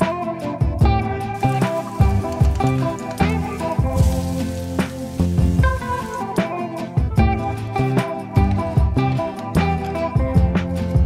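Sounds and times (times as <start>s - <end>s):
background music: 0.0s - 11.0s
omelette sizzling in oil: 1.4s - 6.4s.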